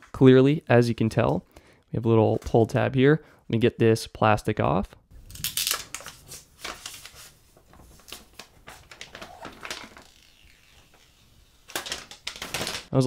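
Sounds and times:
plastic film peeling and crinkling: 5.2 - 12.9.

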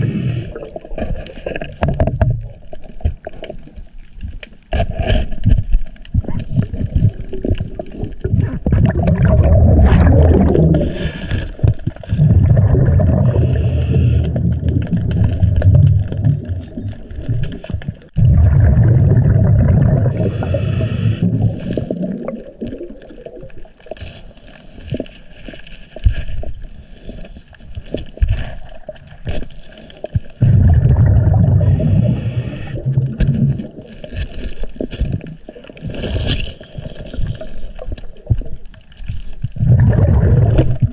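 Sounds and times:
regulator inhale hiss: 0.0 - 0.6, 13.3 - 14.4, 20.2 - 21.3, 31.6 - 32.8
exhaled bubbles rumbling: 0.0 - 4.3, 5.4 - 24.0, 27.8 - 40.9.

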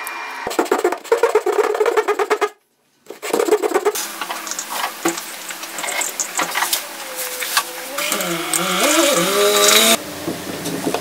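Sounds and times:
small clicks: 7.6 - 10.0.

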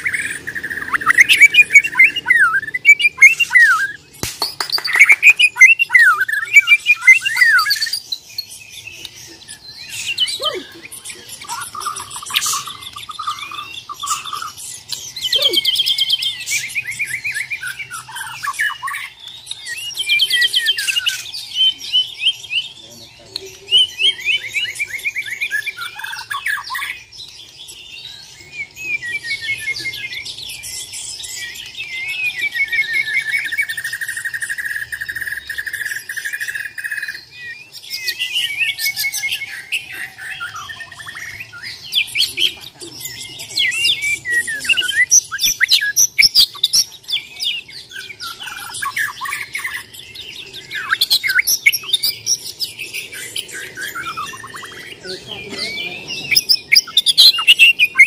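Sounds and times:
bird singing varied whistles: 0.0 - 10.6, 43.6 - 47.3, 50.6 - 55.0, 56.3 - 58.0
bird trill: 0.0 - 58.0.

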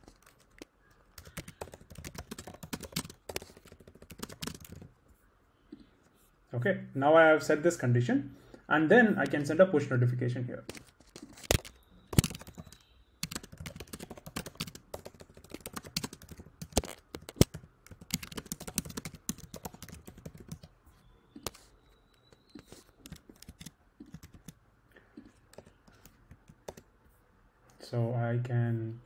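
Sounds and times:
typing on computer keyboard: 0.0 - 5.0, 10.7 - 20.7, 21.4 - 24.6, 25.2 - 26.9.

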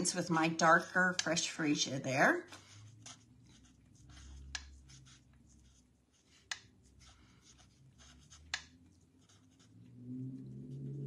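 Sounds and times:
marker scratching on cardstock: 2.5 - 9.8.

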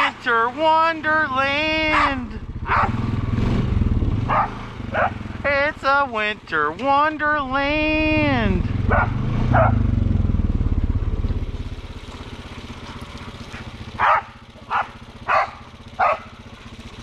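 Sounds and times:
atv engine running: 0.0 - 17.0
dog barking: 1.9 - 3.0, 4.3 - 5.2, 8.8 - 9.9, 12.9 - 16.4.

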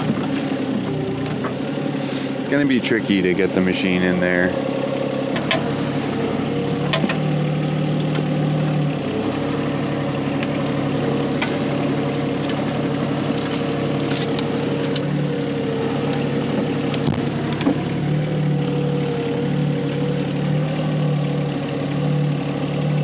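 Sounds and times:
diesel engine running: 0.0 - 23.0.

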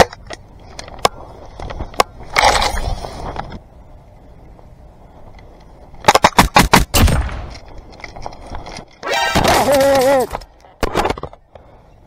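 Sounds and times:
airsoft rifle shots: 6.1 - 7.5
person shouting: 9.1 - 10.4.

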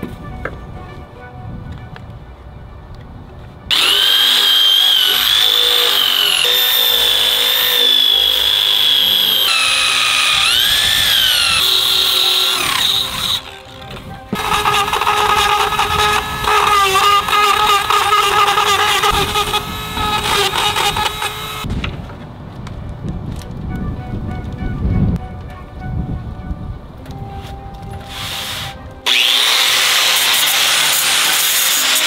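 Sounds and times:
power tool whining: 3.7 - 21.7, 28.0 - 32.0.

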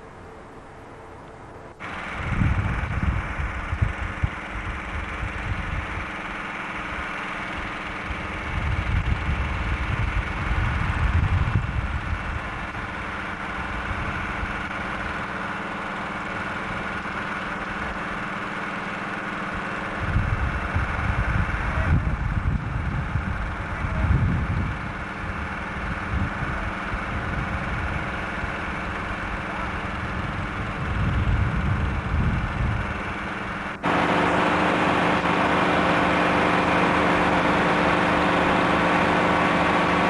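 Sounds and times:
engine running: 0.0 - 40.0
wind on microphone: 1.9 - 6.1, 8.1 - 12.8, 20.0 - 28.2, 29.8 - 33.6.

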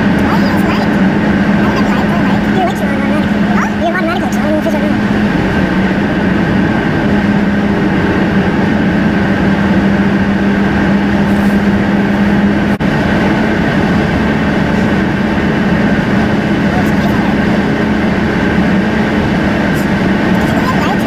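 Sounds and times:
car road and engine noise: 0.0 - 21.0.

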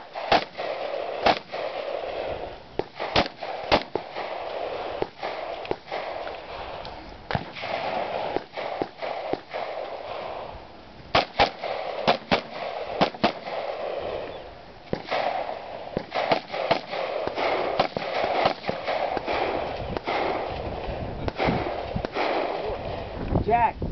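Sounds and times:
rifle shots: 0.0 - 23.2
background hiss: 0.0 - 23.9.

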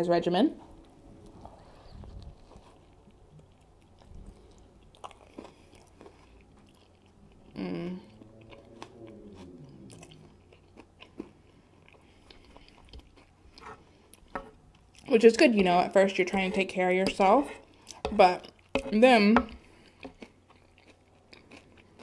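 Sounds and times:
closed-mouth hum: 0.6 - 15.1
chewing and wet mouth clicks: 2.2 - 15.1.

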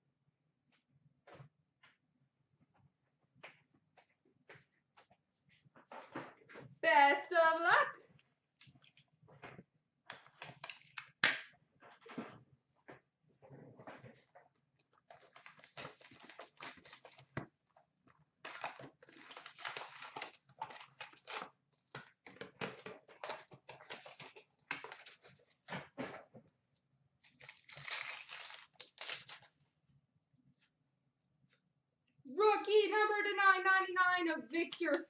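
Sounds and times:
wrappers tearing and crinkling: 10.2 - 11.2, 15.1 - 17.3, 18.4 - 25.3, 27.2 - 29.5.

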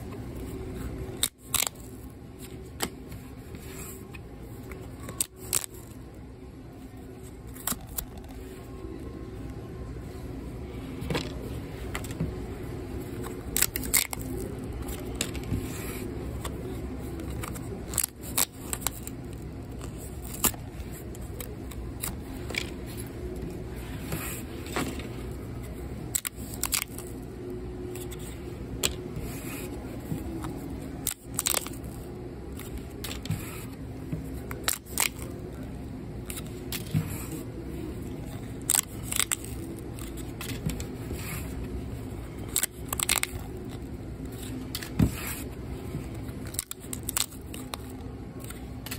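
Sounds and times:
steady low hum: 0.0 - 48.9
cardboard tickets tearing: 13.1 - 15.5, 26.1 - 27.2, 30.9 - 33.3, 34.5 - 35.4, 38.2 - 41.5, 42.3 - 45.4, 46.4 - 48.9.

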